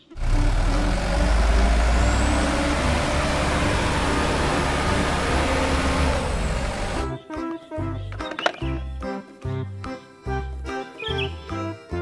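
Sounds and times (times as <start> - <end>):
diesel truck engine rumbling: 0.0 - 7.1.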